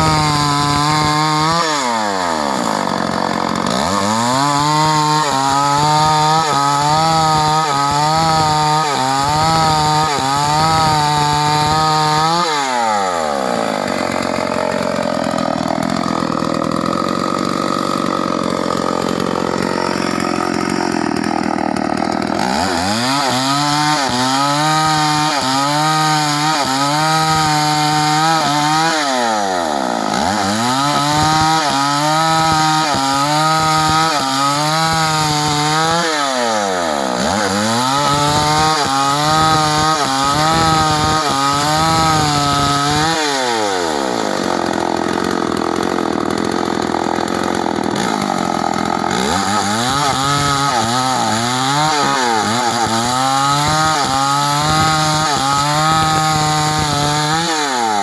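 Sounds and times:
chainsaw cutting log: 0.0 - 58.0.

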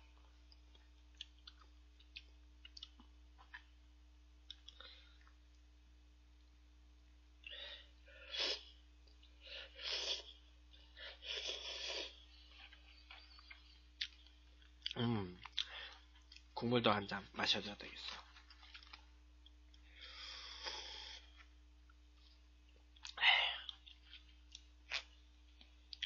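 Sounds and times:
person slurping noodles: 11.2 - 12.2.

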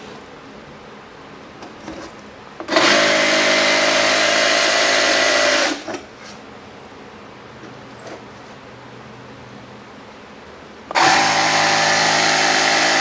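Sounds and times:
jigsaw cutting plywood: 2.6 - 5.9, 10.9 - 13.0.

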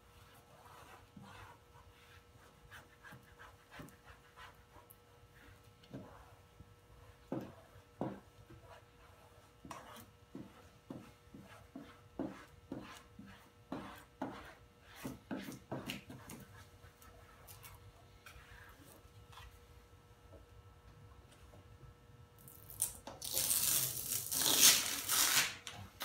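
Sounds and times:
squeegee swiping on vinyl film: 23.2 - 25.6.

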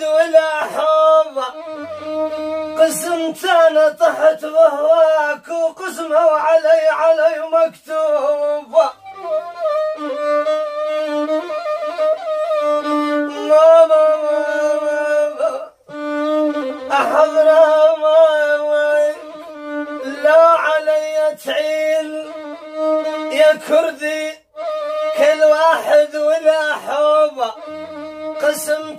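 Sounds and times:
violin playing slow melody: 0.6 - 3.8, 8.8 - 23.8, 24.5 - 28.9.

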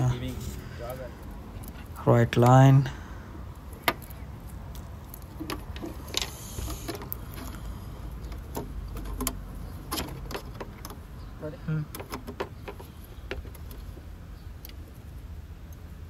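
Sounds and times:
scraping hiss: 6.1 - 8.1.

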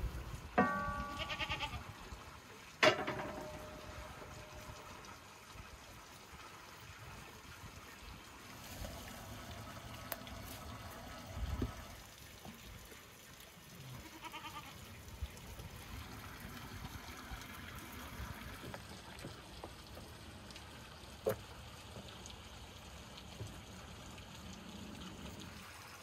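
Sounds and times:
trickle of running water: 0.0 - 26.0
goat bleating: 1.0 - 1.9, 13.9 - 14.8.

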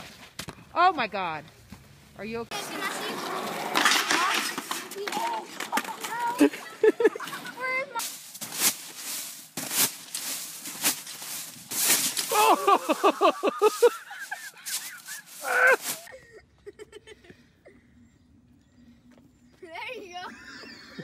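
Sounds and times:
crunching trampoline bounces: 3.8 - 16.1.

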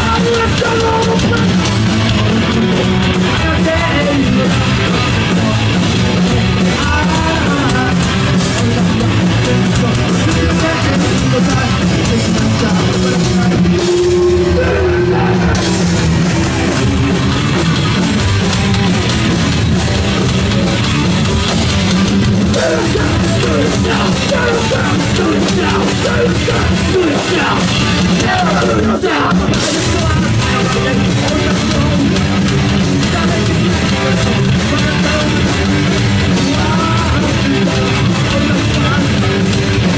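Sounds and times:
singer shouting into a microphone: 0.0 - 1.6, 6.7 - 15.9, 22.5 - 32.1
punk band playing live: 0.0 - 39.9.

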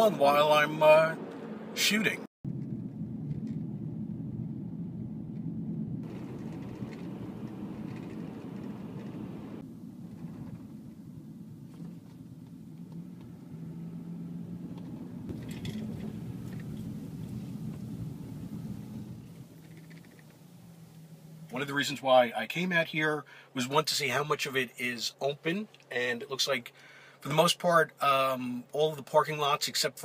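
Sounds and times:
road and engine noise in car: 0.0 - 22.0.

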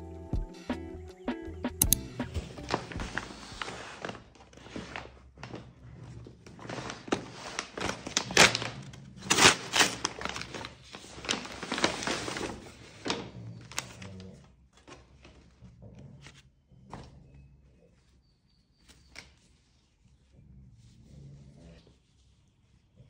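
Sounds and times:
paper bag crinkling and rustling: 2.4 - 15.6.

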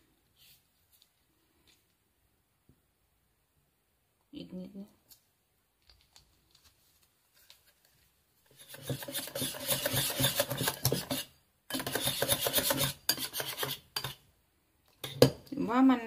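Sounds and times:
whisk scraping glass bowl: 8.5 - 14.2.

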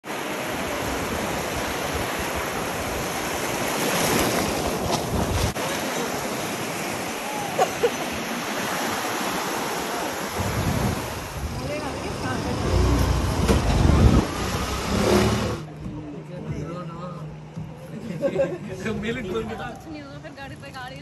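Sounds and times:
sea surf washing on shore: 0.0 - 15.7
wind on microphone: 10.4 - 15.6.

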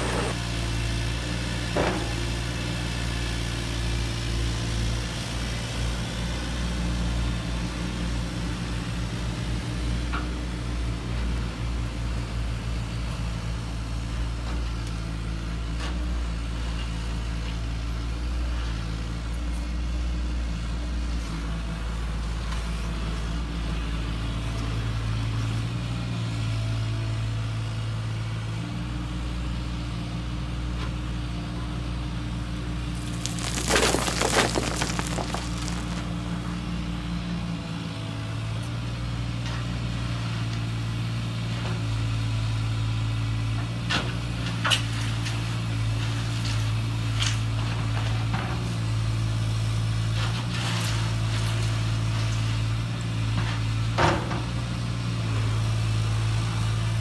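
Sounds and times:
bucket scraping stones: 33.0 - 36.2
stones clacking: 33.0 - 36.2.

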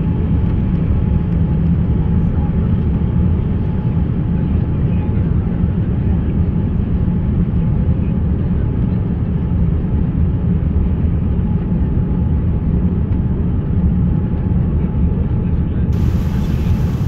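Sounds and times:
airliner cabin rumble: 0.0 - 17.0
faint steady hum: 15.9 - 17.0.

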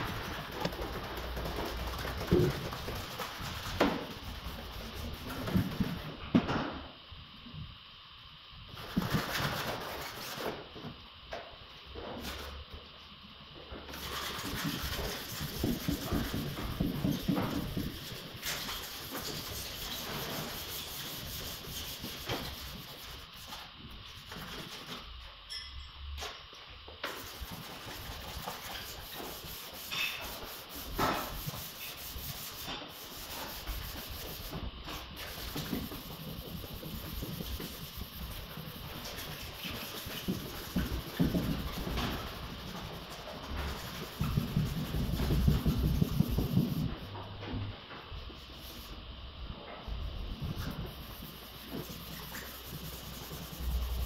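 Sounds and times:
sandpaper rasping on car bonnet: 14.0 - 23.6, 27.1 - 46.9, 50.7 - 54.0.

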